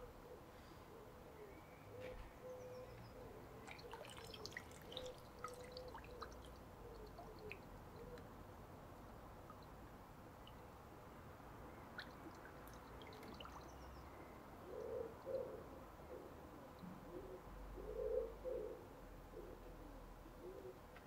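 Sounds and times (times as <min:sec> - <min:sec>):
muffled water drips and plinks: 0:03.6 - 0:14.1.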